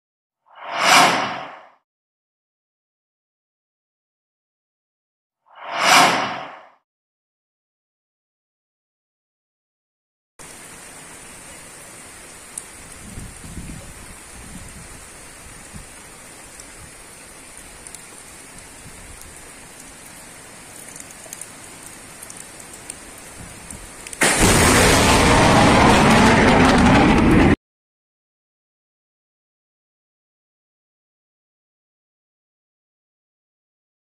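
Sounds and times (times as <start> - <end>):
rain falling on puddles: 10.4 - 25.3
low rumbles: 23.4 - 27.6
loud rush of noise: 24.2 - 27.6.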